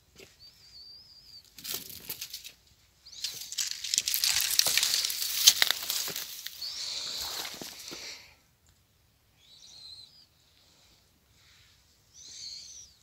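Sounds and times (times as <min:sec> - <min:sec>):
dry vegetation crackling and snapping: 0:01.5 - 0:02.6, 0:03.2 - 0:08.0.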